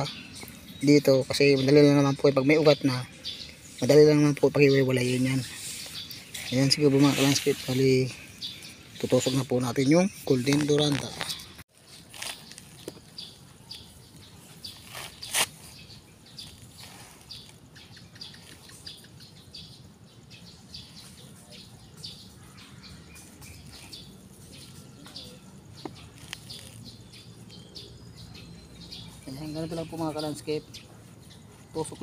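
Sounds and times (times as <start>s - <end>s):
birds chirping: 0.0s - 32.0s
rustling and scraping of cuttings in sand: 3.5s - 19.1s, 20.8s - 28.5s.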